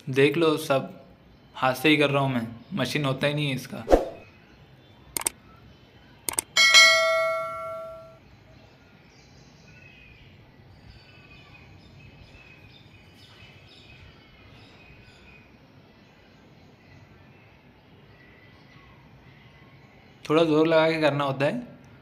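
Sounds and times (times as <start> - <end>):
click: 5.2 - 5.4, 6.3 - 6.5
bell ding: 6.6 - 8.2.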